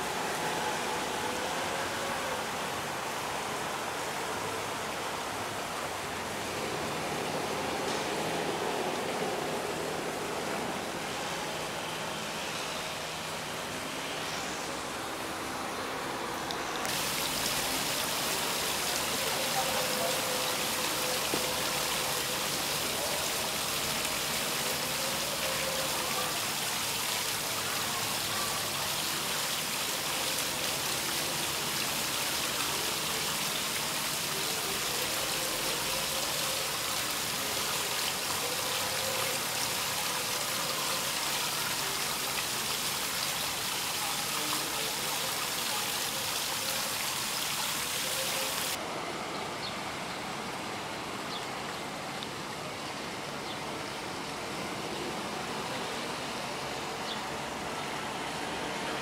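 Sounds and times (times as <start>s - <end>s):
fountain splashing into basin: 16.6s - 48.8s.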